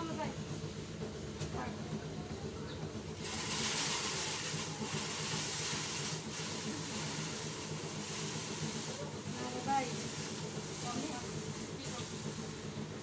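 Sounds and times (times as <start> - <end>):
thresher engine drone: 0.0 - 13.0
loud rushing hiss: 2.8 - 13.0.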